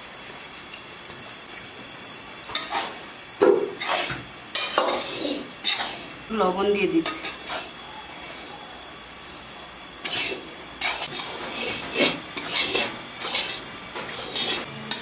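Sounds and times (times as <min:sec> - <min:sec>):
spatula scraping pan: 0:02.5 - 0:03.0, 0:03.6 - 0:06.2, 0:07.0 - 0:08.5, 0:10.0 - 0:15.0
flour hissing in hot pan: 0:02.7 - 0:06.3, 0:10.0 - 0:14.8.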